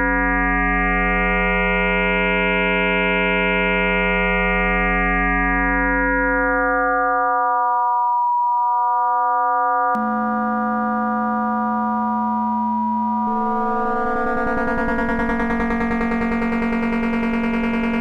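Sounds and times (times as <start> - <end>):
synthesized electronic drone: 10.0 - 18.0.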